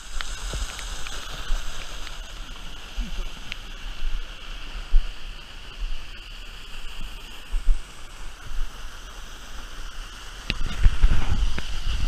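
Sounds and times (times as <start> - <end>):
rushing river water: 0.0 - 12.0
low rumbles on microphone: 10.5 - 12.0.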